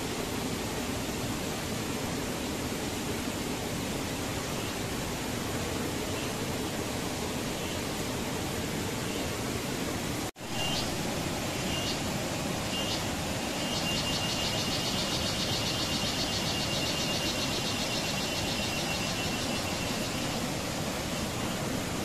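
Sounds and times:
rushing background noise: 0:00.0 - 0:22.0
pulsing insect chirr: 0:10.4 - 0:22.0.

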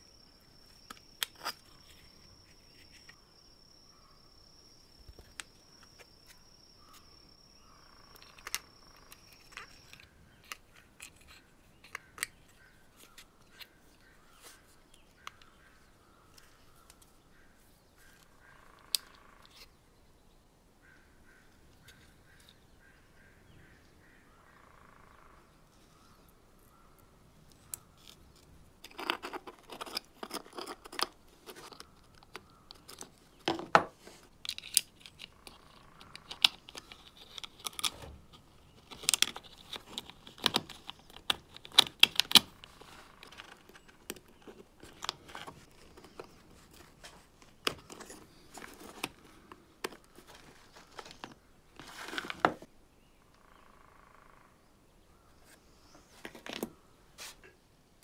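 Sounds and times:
small parts clicking and knocking: 0:08.1 - 0:12.5, 0:27.5 - 0:46.9.

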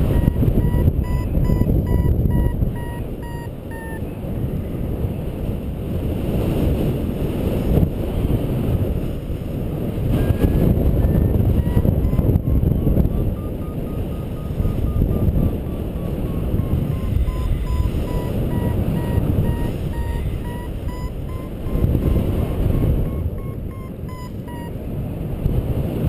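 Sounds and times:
variometer beeping: 0:00.0 - 0:04.1, 0:10.1 - 0:24.8
wind rushing over microphone: 0:00.0 - 0:26.0.

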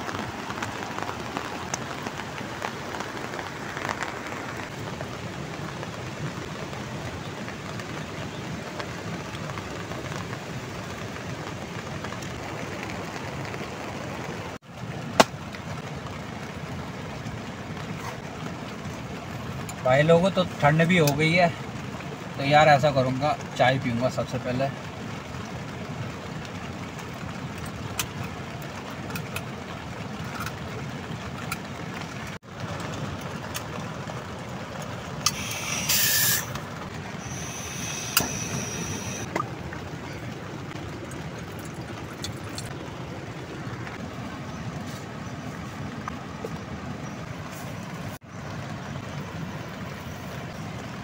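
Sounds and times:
gas hissing: 0:35.2 - 0:36.6, 0:37.2 - 0:39.3.

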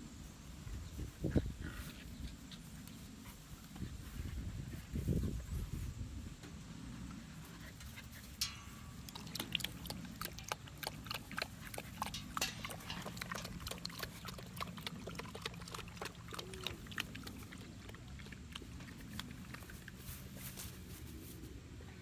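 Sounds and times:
puppies grunting and growling: 0:09.1 - 0:20.0.

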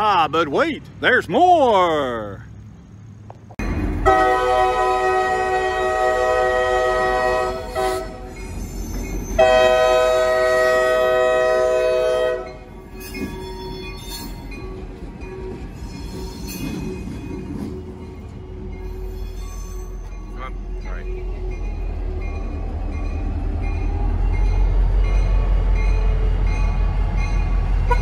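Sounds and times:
locomotive engine and wheels rumbling: 0:00.0 - 0:28.0
locomotive air horn blasts: 0:04.0 - 0:08.3, 0:09.4 - 0:12.6.

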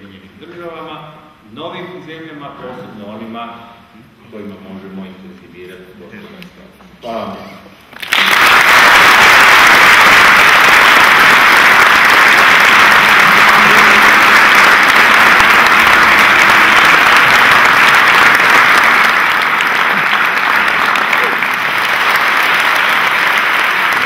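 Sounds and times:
large audience applauding: 0:07.9 - 0:24.0.

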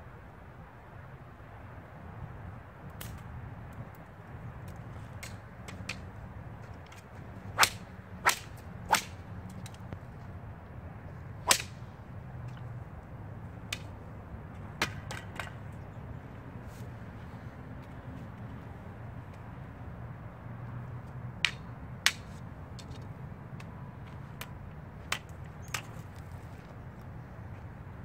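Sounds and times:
sharp cracks: 0:06.9 - 0:09.8, 0:11.5 - 0:11.8.

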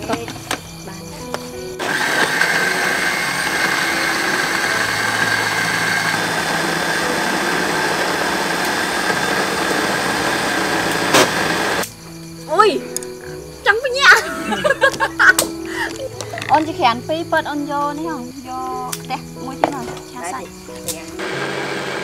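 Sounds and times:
blender motor whirring: 0:01.8 - 0:11.8, 0:21.2 - 0:22.0.

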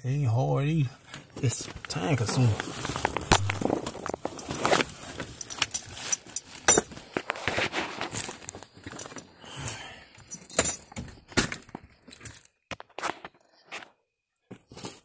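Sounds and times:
rustling: 0:01.1 - 0:09.1
metallic clinks and rattles: 0:02.4 - 0:07.0, 0:10.2 - 0:11.1.

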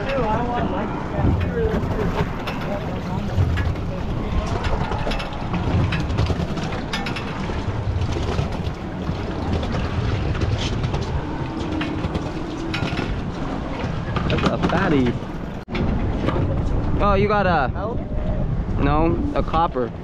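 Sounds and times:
boat engine rumble: 0:00.0 - 0:20.0.

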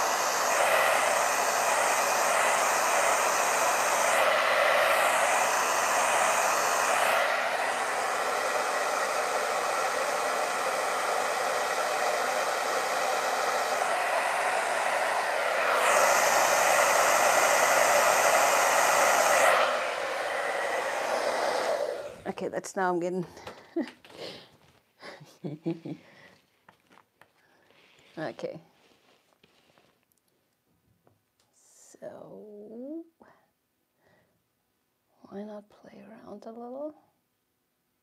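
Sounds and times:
hair dryer blowing: 0:00.0 - 0:22.5.

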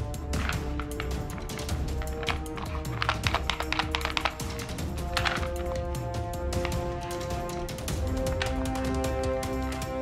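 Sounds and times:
sharp clicks: 0:00.5 - 0:05.8.

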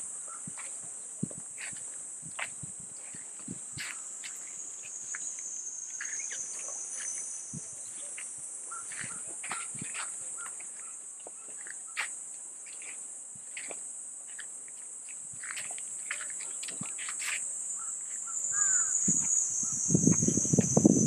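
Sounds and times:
insects buzzing: 0:00.0 - 0:21.0.

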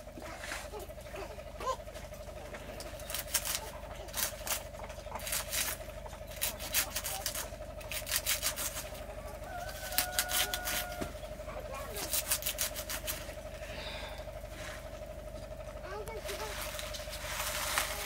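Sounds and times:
faint steady hum: 0:00.0 - 0:18.0
blade slicing leafy greens: 0:03.0 - 0:09.0, 0:09.7 - 0:11.1, 0:11.8 - 0:13.2.

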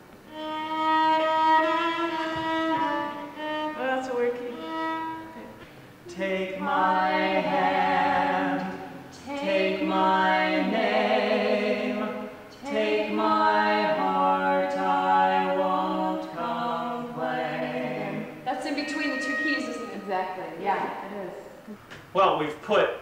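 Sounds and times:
voices singing in harmony: 0:00.3 - 0:21.7.

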